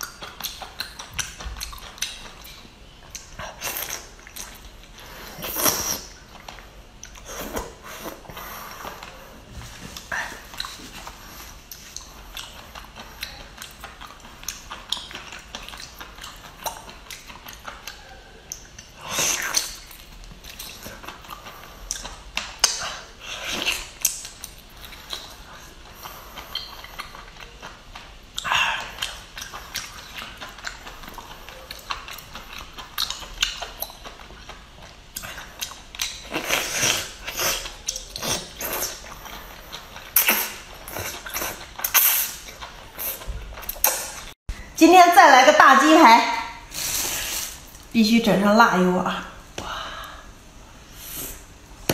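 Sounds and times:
wet chewing clicks and smacks: 0.0 - 7.7, 10.0 - 44.4
wet slurping and sucking: 3.4 - 6.2, 36.2 - 44.1, 46.7 - 47.8
wet slurp: 40.0 - 44.2, 46.7 - 47.8.

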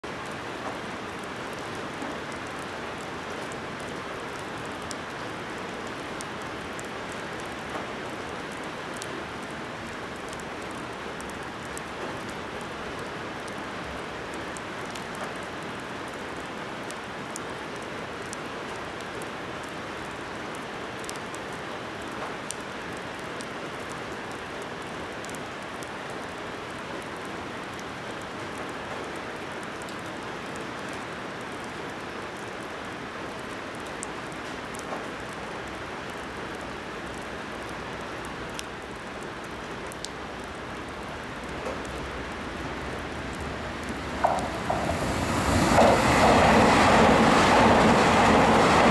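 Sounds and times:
raindrop ticks: 0.1 - 48.9
heavy rain hissing: 39.5 - 48.9.

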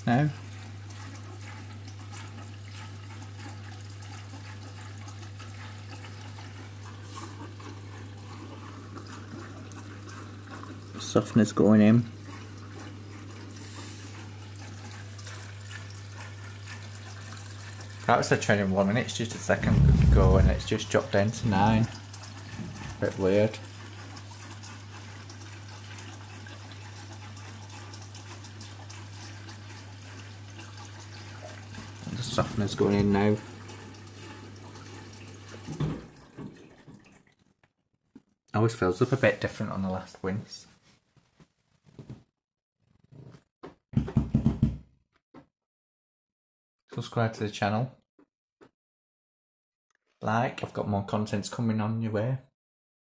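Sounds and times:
water rushing into washing machine: 0.0 - 37.5
low hum: 19.6 - 20.7.

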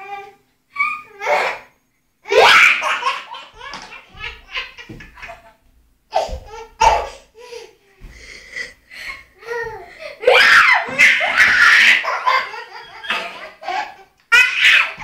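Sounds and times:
baby laughing: 2.3 - 7.6, 9.4 - 15.0.

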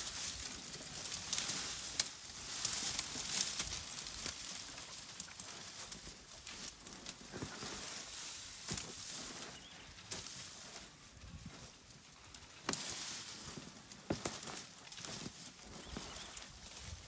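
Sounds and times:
branches snapping: 0.0 - 7.7, 12.3 - 16.0
dry vegetation rustling: 0.0 - 17.0.

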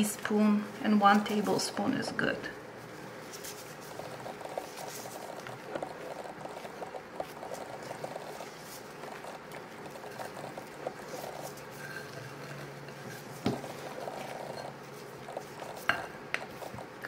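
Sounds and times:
spatula scraping sticky batter: 3.3 - 16.8.

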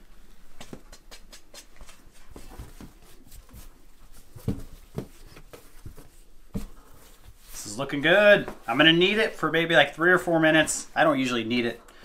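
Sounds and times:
dough thumps and pats: 0.5 - 6.8.

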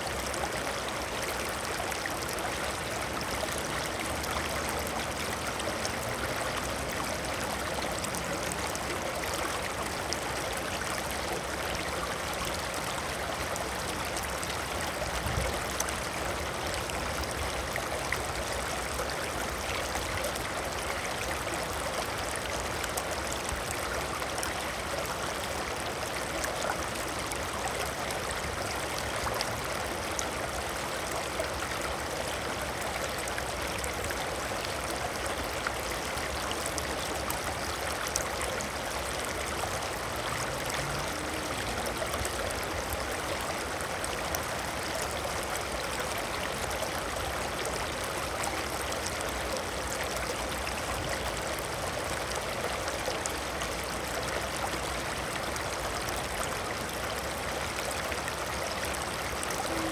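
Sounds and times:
water rushing: 0.0 - 59.9.

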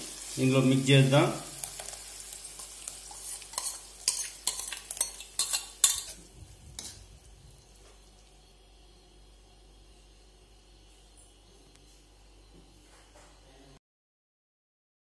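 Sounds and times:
faint sizzle: 0.0 - 13.8
steel spoon scraping a bowl: 3.1 - 6.2, 6.8 - 7.1.

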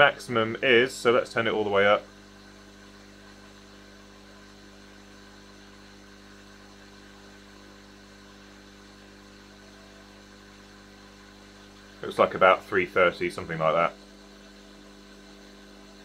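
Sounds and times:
pump mains hum: 0.0 - 16.0.

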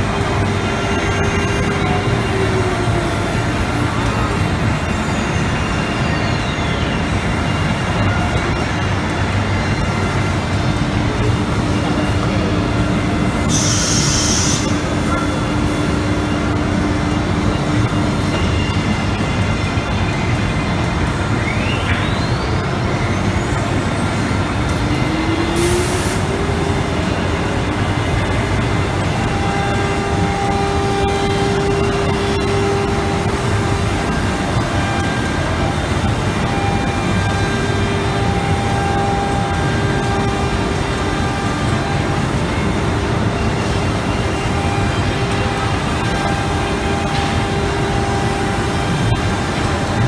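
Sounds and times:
cnc router spindle whine: 0.0 - 50.0
loud machine noise: 0.0 - 50.0
short air hiss: 13.5 - 14.6.

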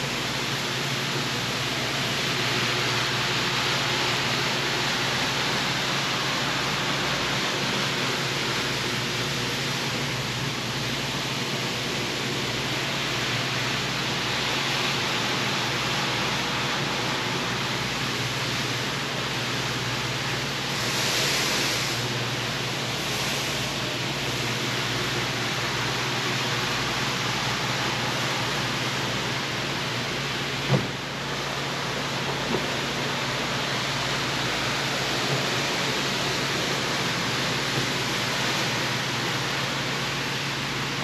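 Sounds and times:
rushing hiss: 20.6 - 24.8.

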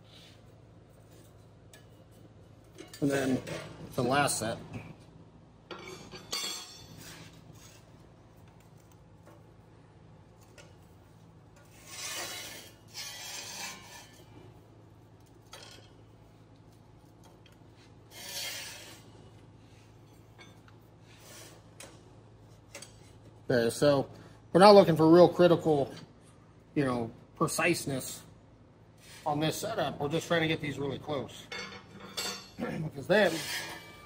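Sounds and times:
sheet metal clinks: 5.7 - 7.0
metal scraping on steel table: 5.7 - 7.9, 11.6 - 14.5, 18.1 - 19.1, 33.1 - 34.0.

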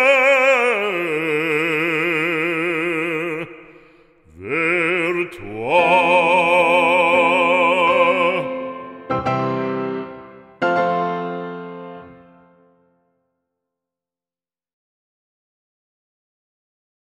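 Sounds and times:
operatic solo singing: 0.0 - 9.3.

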